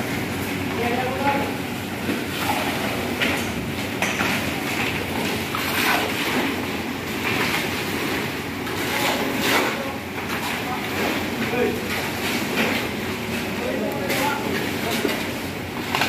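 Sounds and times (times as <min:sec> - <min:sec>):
shovels scraping concrete: 0:08.6 - 0:16.0.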